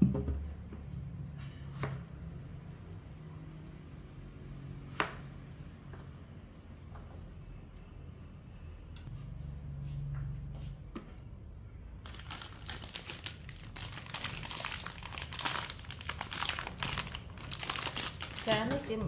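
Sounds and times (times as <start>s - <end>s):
plastic packet crinkling: 12.0s - 19.0s.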